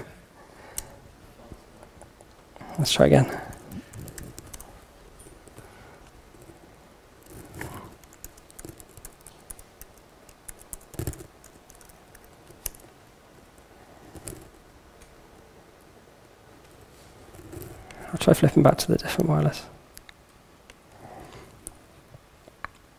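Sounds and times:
laptop keyboard typing: 3.2s - 4.7s, 7.2s - 15.1s.

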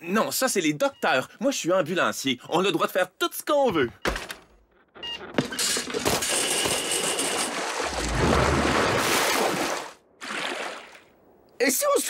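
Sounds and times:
water splashing and sloshing: 5.8s - 11.3s.

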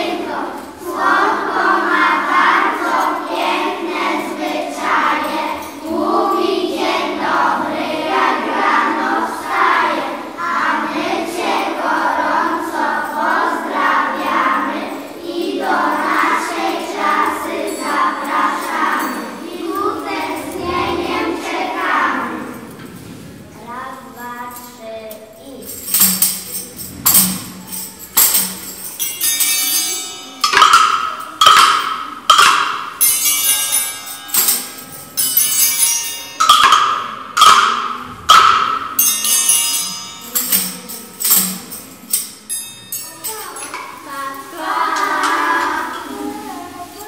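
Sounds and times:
tambourines jingling: 0.0s - 22.9s, 24.0s - 47.0s
children singing in unison: 0.0s - 23.5s, 43.5s - 47.0s
triangles: 0.0s - 47.0s
rhythm sticks tapping: 25.8s - 43.0s.

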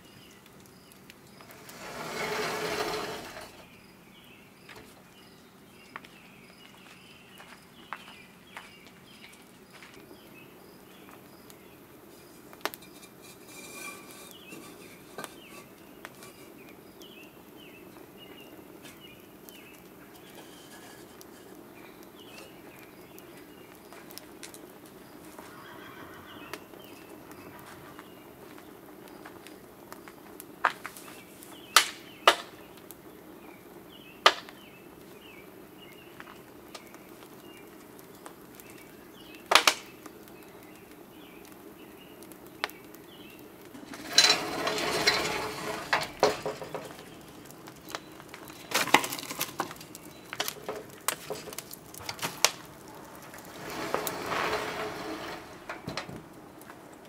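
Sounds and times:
wood fire popping: 0.0s - 25.7s, 26.5s - 57.0s
rustling scraping: 1.3s - 3.7s, 12.1s - 16.7s, 20.0s - 22.8s, 43.7s - 56.4s.

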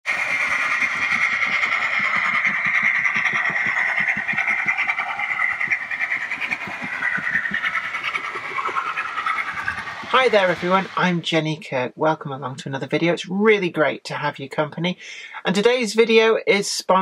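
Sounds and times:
wheels clicking on track: 0.0s - 11.1s
model train whirring: 0.0s - 11.2s.

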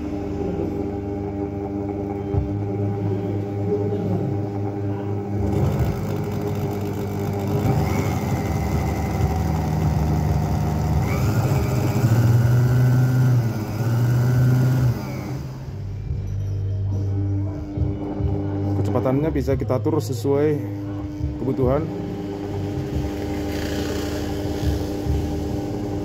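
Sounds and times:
motor whining: 4.5s - 16.0s, 20.8s - 26.0s.

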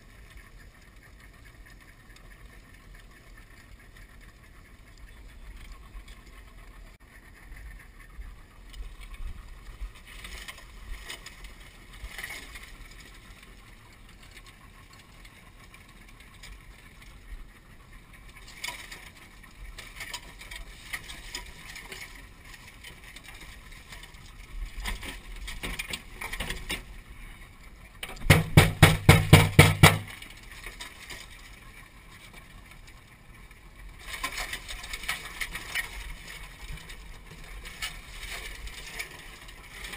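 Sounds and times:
outboard motor idling: 0.0s - 39.9s
loud rapid rattle: 28.1s - 30.2s.

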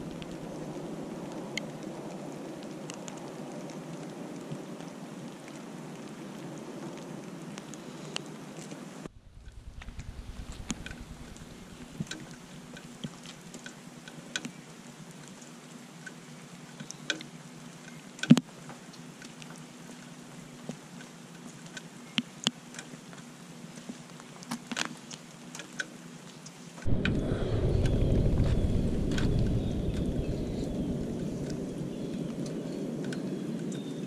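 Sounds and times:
low rushing noise: 0.0s - 1.4s, 9.1s - 13.0s, 26.8s - 33.7s
water dripping into puddle: 0.0s - 8.7s
soft steady hiss: 0.0s - 34.0s.

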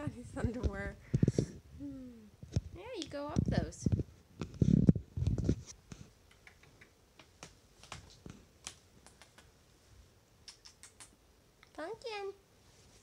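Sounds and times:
kitten claws scratching carpet: 3.4s - 9.5s.

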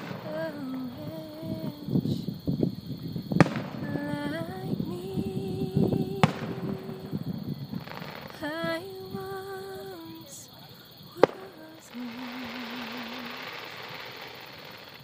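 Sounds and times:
held humming tone: 0.0s - 2.4s, 3.6s - 10.3s
fireworks bursting with bangs: 0.0s - 15.0s
fireworks crackling: 0.0s - 15.0s.

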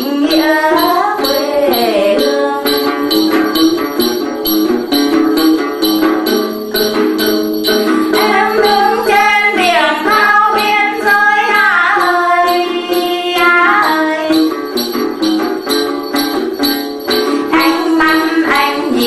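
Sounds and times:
woman singing: 0.0s - 4.2s, 8.1s - 14.6s, 17.2s - 19.0s
jingling bells: 0.0s - 19.0s
plucked lute: 0.0s - 19.0s.

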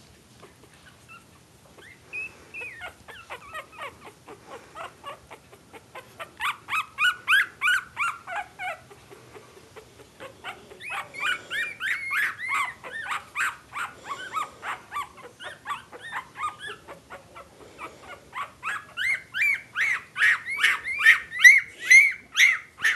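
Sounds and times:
puppies squealing and whimpering: 0.5s - 22.9s.

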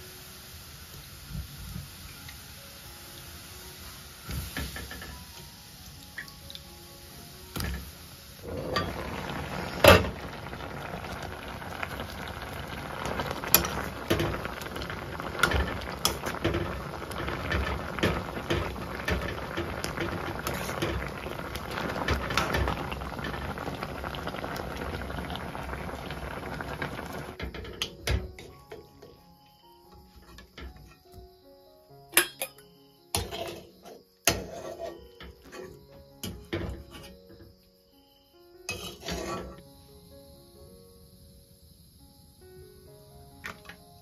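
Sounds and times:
water boiling in a pot: 0.0s - 28.9s, 34.3s - 37.1s, 38.7s - 39.6s.

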